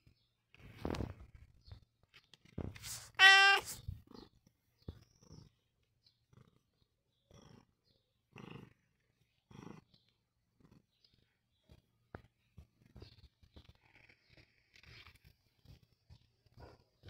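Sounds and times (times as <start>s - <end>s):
cat purring: 2.3s - 17.0s
cat meowing: 2.9s - 3.8s.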